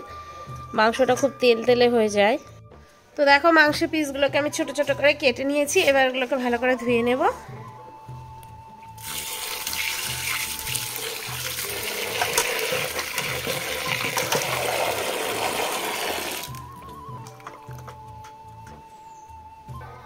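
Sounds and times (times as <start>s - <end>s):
running water splashing on meat: 9.0s - 16.6s.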